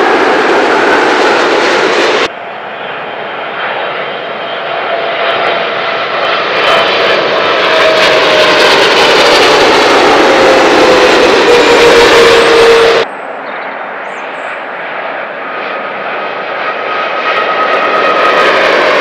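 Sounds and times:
jet airliner passing overhead: 0.0 - 19.0.

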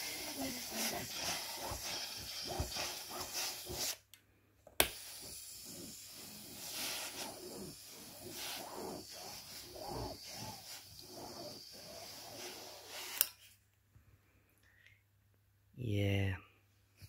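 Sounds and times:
pad rubbing on upholstery: 0.0 - 4.0, 5.1 - 13.1
steam cleaner hissing: 0.0 - 4.0, 4.8 - 13.2.

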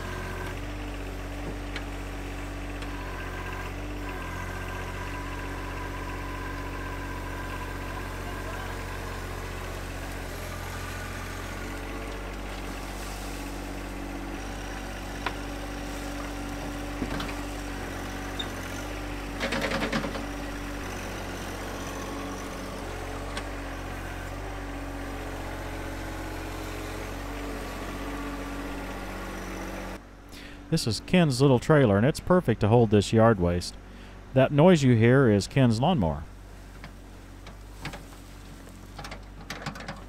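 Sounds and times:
tractor diesel engine running: 0.0 - 40.0
dirt dumping into wooden trailer: 12.0 - 20.4.

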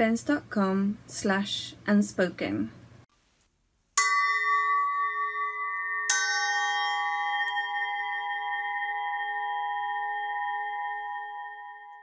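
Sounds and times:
bell ringing: 4.0 - 12.0.

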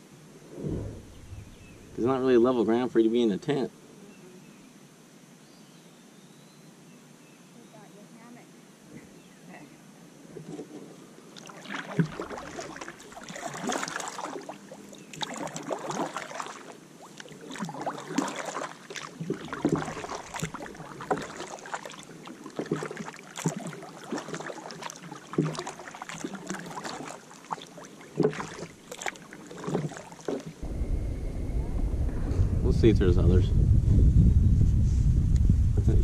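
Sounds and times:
paddle strokes splashing in water: 10.3 - 30.6
water dripping: 11.4 - 30.7.

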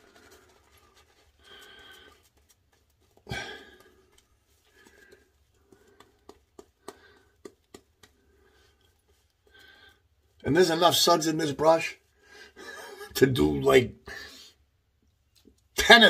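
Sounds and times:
soft breathing: 0.0 - 10.4.

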